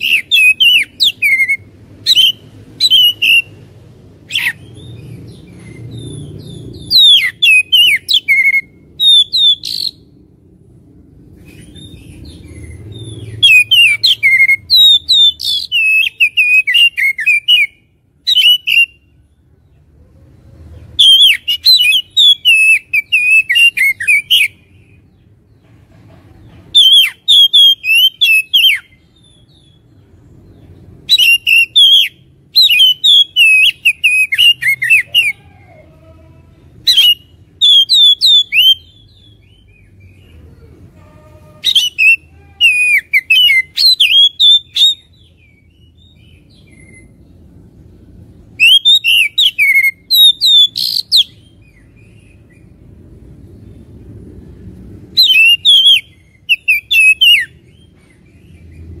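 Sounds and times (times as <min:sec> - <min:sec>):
bird singing whistled phrases: 0:00.0 - 0:03.6, 0:06.8 - 0:10.0, 0:13.3 - 0:19.0, 0:21.0 - 0:24.6, 0:26.8 - 0:29.8, 0:31.1 - 0:35.4, 0:36.9 - 0:40.2, 0:41.6 - 0:47.2, 0:48.6 - 0:52.2, 0:55.2 - 0:57.6.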